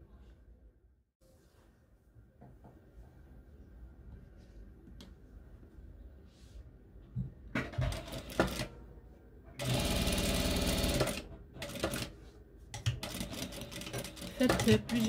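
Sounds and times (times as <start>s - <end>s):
sewing machine stitching: 7.8s - 8.7s, 9.6s - 12.1s, 12.8s - 15.0s.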